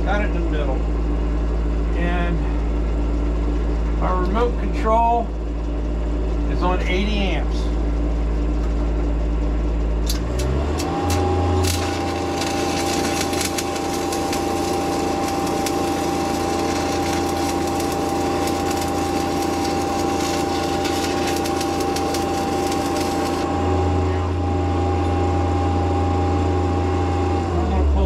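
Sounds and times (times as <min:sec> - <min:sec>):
welding machine engine humming: 0:00.0 - 0:28.0
welding arc crackling and sizzling: 0:10.0 - 0:24.0.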